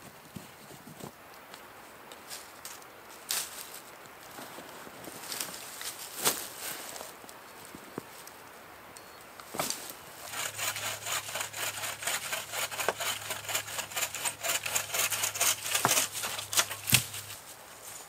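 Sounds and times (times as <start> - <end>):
hand saw cutting wood: 10.2 - 17.3.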